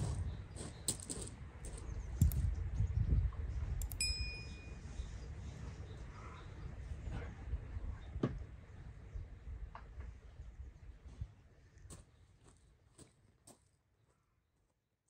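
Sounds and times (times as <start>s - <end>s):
low rumbling background noise: 0.0s - 13.1s
mouse clicks: 3.8s - 4.0s
bright bell ding: 3.9s - 4.8s.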